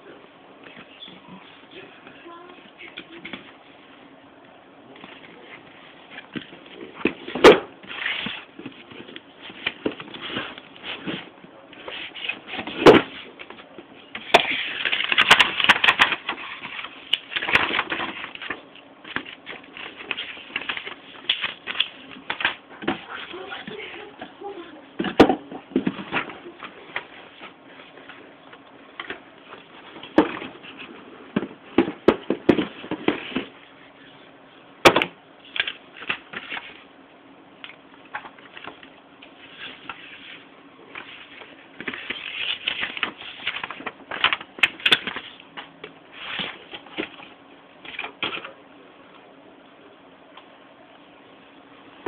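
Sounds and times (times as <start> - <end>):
cardboard and plastic packaging clicks: 14.2 - 23.0, 40.9 - 45.7.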